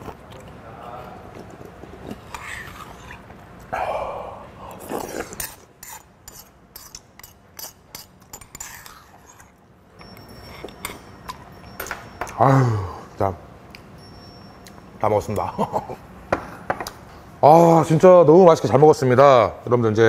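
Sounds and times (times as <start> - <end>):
slurping soup: 1.2 - 3.3
spoon scraping and clinking bowl: 5.4 - 12.2.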